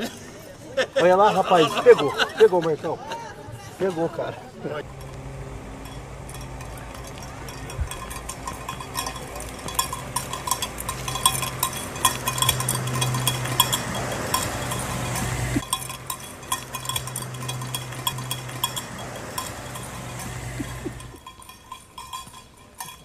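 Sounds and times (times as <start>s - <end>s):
steady low hum: 4.7s - 23.0s
rapid metallic clinking: 4.8s - 23.0s.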